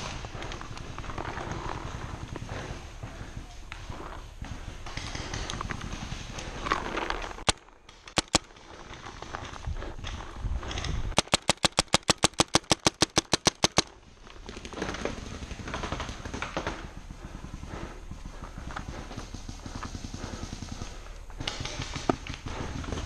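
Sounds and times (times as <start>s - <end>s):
paintball marker firing: 7.4s - 8.6s, 11.2s - 14.0s.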